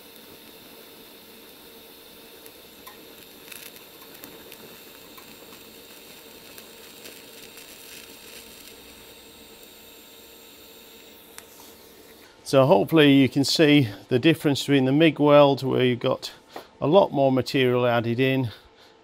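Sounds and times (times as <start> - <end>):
small crackles: 0.0 - 12.4
faint hum: 0.0 - 19.0
welding arc hiss and sizzle: 0.0 - 19.0.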